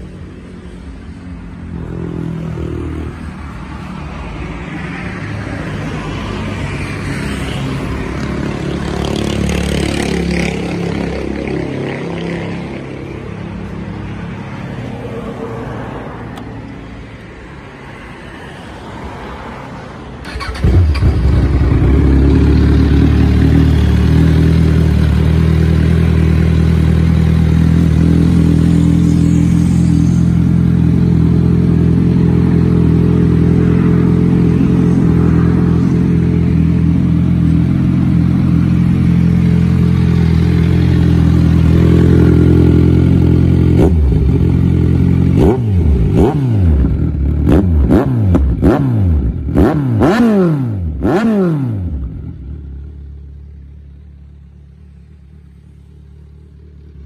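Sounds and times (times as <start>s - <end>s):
motorcycle engine idling: 20.3s - 45.4s, 52.0s - 57.0s.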